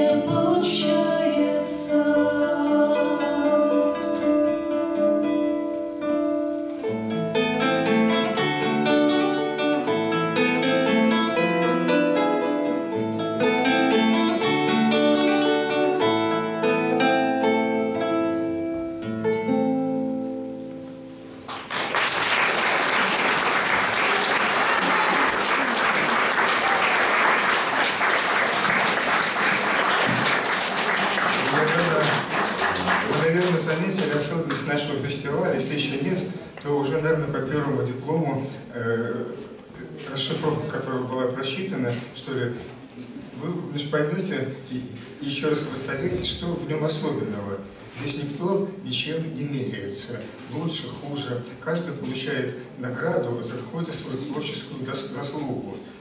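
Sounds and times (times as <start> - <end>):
acoustic guitars plucking: 0.0 - 21.7, 23.7 - 56.0
audience applause: 21.5 - 34.6.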